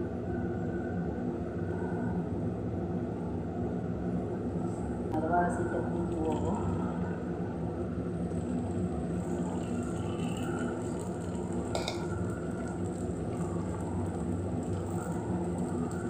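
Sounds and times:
steady low hum: 0.0 - 16.0
batter frying in hot oil: 8.0 - 16.0.

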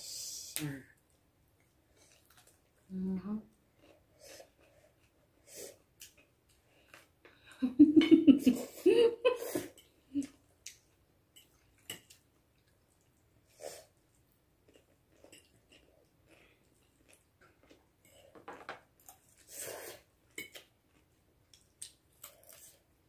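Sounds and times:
chewing: 1.1 - 2.9, 3.7 - 5.4, 13.8 - 18.4, 19.0 - 22.9.

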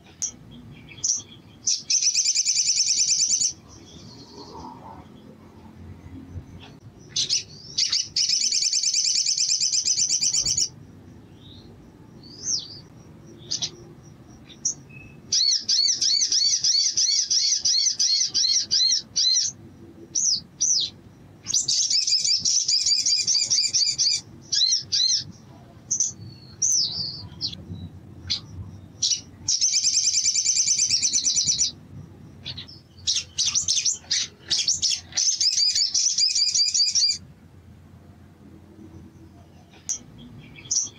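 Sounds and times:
bird singing fast high trills: 0.9 - 4.6, 7.0 - 13.8, 14.4 - 19.6, 20.2 - 25.3, 29.0 - 31.8, 32.4 - 37.2.

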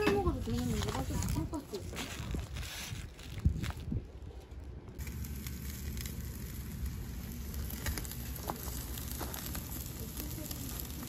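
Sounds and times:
charcoal fire crackling: 0.0 - 11.0
meat sizzling on a grill: 5.0 - 11.0.

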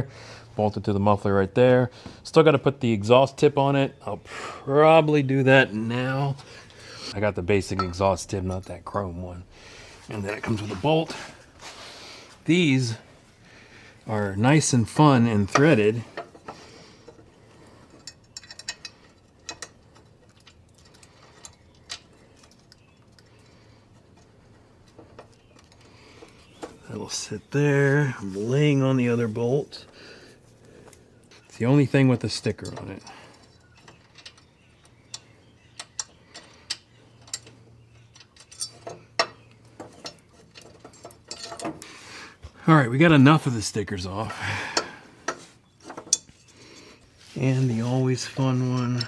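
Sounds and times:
small metallic clicks: 17.9 - 26.8, 32.6 - 41.9
small metal clicks and taps: 18.0 - 23.4.

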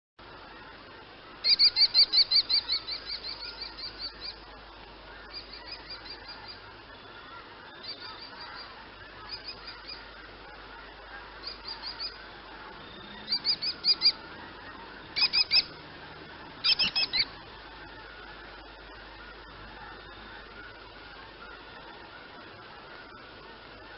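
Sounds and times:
kestrel calling: 1.4 - 23.9.

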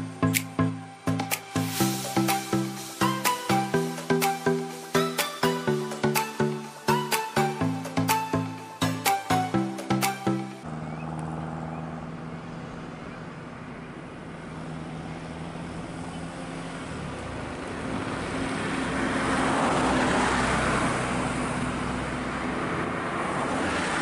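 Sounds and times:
passing road traffic: 0.0 - 24.0
vehicle passing close: 10.6 - 24.0.

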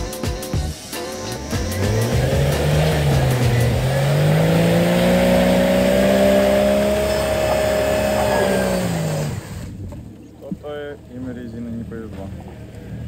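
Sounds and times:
engine pulling under load: 1.4 - 10.1.

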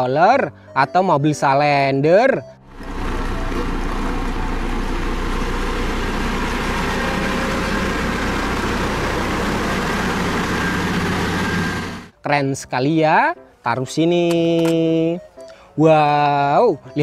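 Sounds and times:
road roller engine humming: 2.6 - 12.2.

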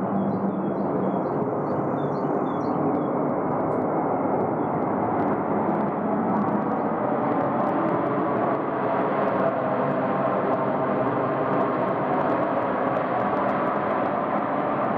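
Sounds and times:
jet engines rumbling: 0.0 - 14.9
faint bird chirps: 0.1 - 3.1.

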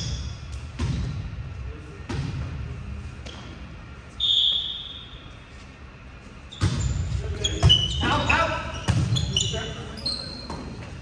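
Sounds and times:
referee's whistle blast: 4.2 - 5.2.

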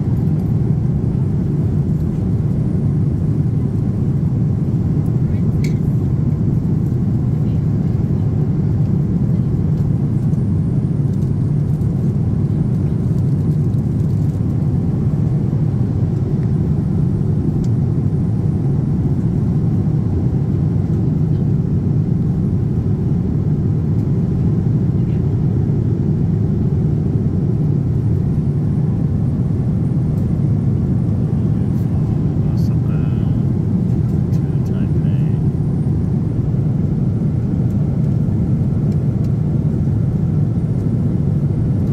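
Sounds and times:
airliner cabin rumble: 0.0 - 41.9.

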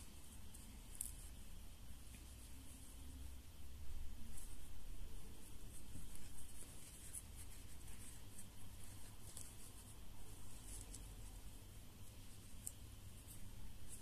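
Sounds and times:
steady low hum: 0.0 - 14.0
crochet hook scratching yarn: 4.0 - 14.0.

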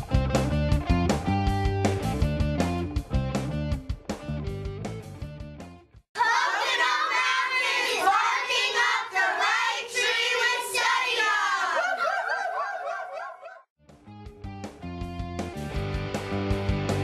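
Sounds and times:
children and women singing: 6.2 - 12.0.

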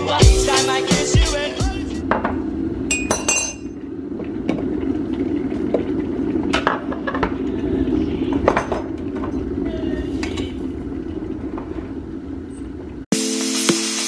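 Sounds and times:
electric kettle rumbling: 1.7 - 13.1
mugs and teaspoon clinking: 2.9 - 3.7.

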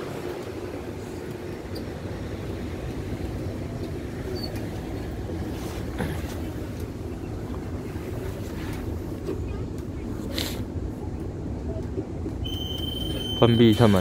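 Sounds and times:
train car low hum: 0.0 - 14.0.

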